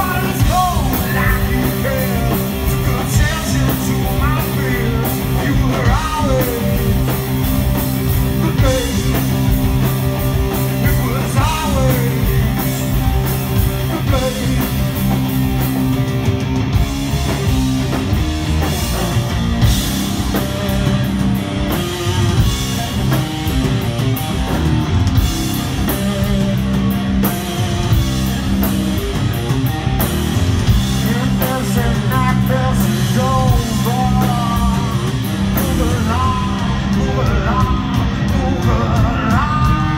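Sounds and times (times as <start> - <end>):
distorted electric guitars: 0.0 - 39.9
drums: 0.0 - 39.9
person singing into microphone: 31.0 - 39.9.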